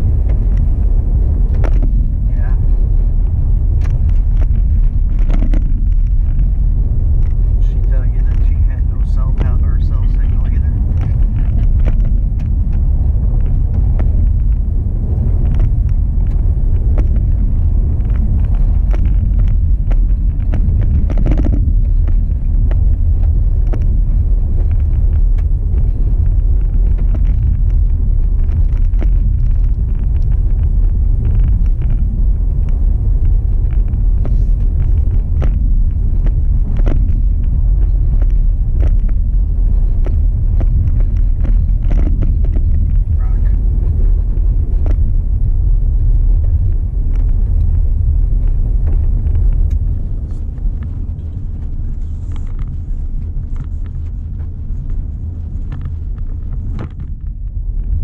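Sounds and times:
car tyres and engine rumble: 0:00.0 - 0:58.0
gravel ticks and knocks: 0:00.0 - 0:58.0.

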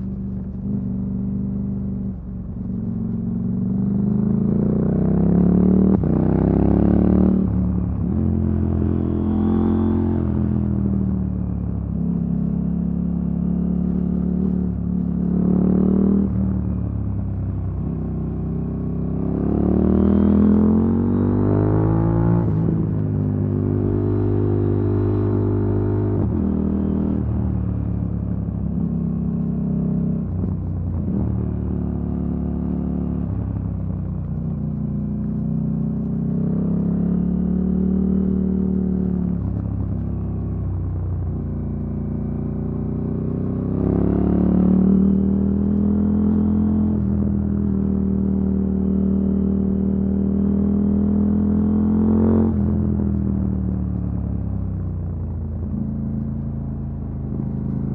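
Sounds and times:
motorcycle engine running: 0:00.0 - 0:57.9.

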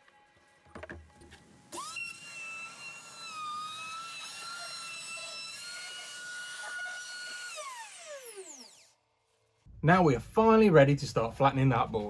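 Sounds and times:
router whining while cutting wood: 0:01.7 - 0:09.0.

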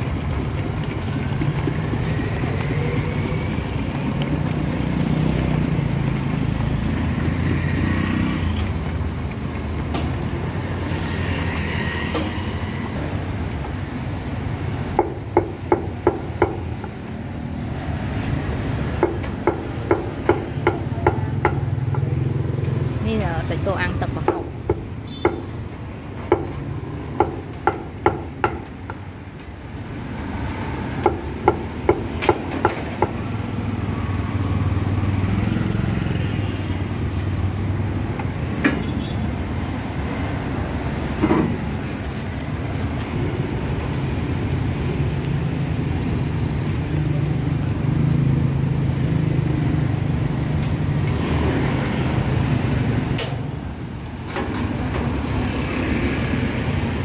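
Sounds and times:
busy market street noise: 0:00.0 - 0:57.0.

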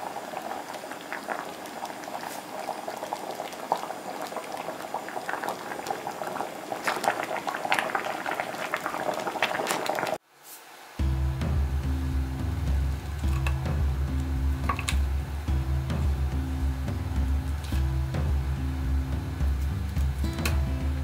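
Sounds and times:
thick sauce boiling and popping: 0:00.0 - 0:10.2, 0:12.2 - 0:21.0.

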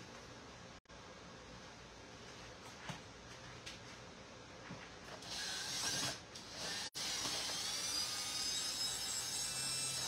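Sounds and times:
cordless drill motor whine: 0:05.2 - 0:10.0.

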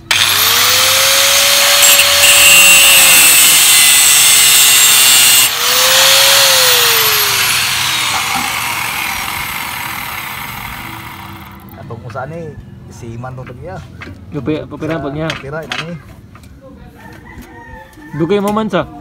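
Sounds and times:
angle grinder cutting metal pipe: 0:00.0 - 0:11.8.

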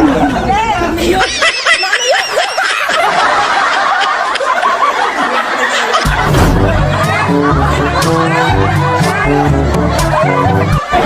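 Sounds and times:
group of people laughing: 0:00.0 - 0:11.0
squeals of laughter: 0:01.1 - 0:06.2.

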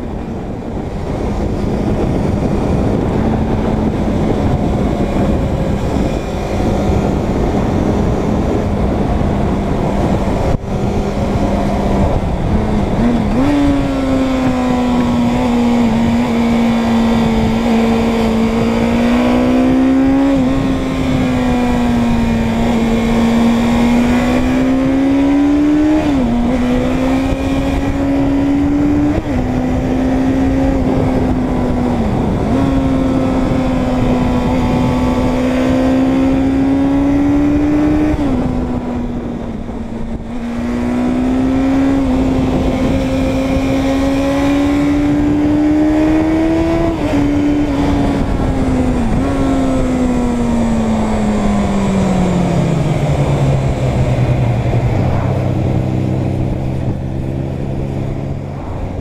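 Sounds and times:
motorcycle engine shifting gears: 0:00.0 - 0:59.0
wind rush: 0:00.0 - 0:59.0.

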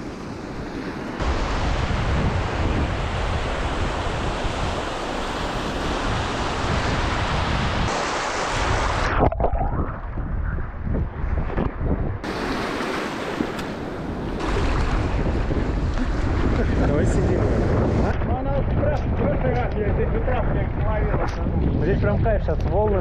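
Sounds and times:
small waves breaking: 0:00.0 - 0:09.2, 0:12.2 - 0:16.8
wind buffeting microphone: 0:00.0 - 0:23.0
muffled underwater rumble: 0:09.0 - 0:12.2.

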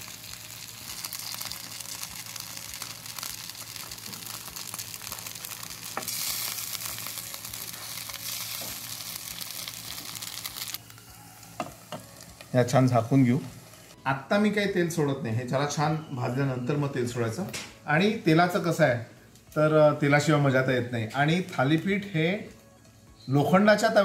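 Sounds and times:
batter sizzling in oil: 0:00.0 - 0:14.0.

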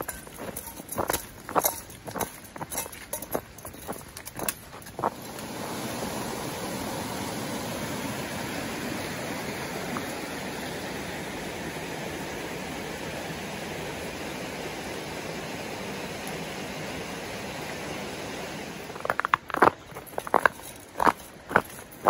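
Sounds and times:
footsteps: 0:00.0 - 0:05.4, 0:19.0 - 0:22.0.

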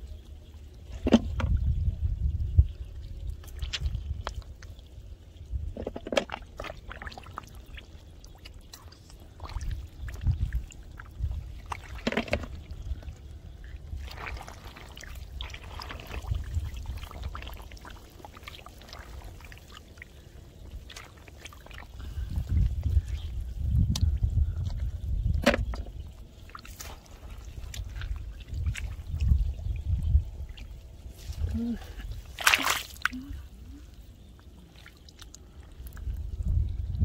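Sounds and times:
mud squelching: 0:03.2 - 0:05.1, 0:05.7 - 0:36.9
hands sloshing in water: 0:13.9 - 0:23.1, 0:26.4 - 0:33.4.

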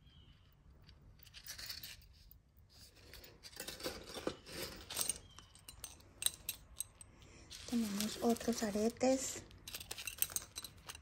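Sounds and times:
jewelry clicking and tapping: 0:05.0 - 0:08.2
packaging rustling: 0:07.5 - 0:11.0.

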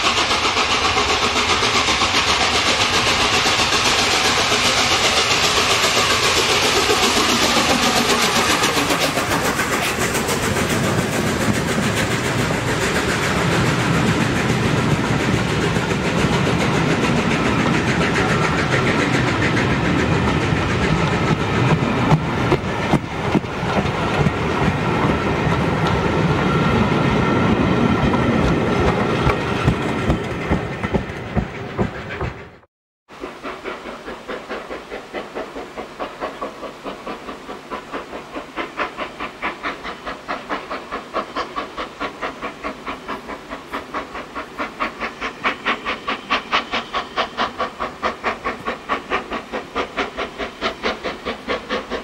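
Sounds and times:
steam locomotive passing: 0:00.0 - 0:52.0.

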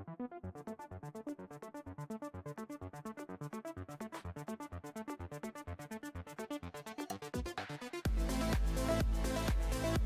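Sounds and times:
electronic dance music: 0:07.2 - 0:10.0.

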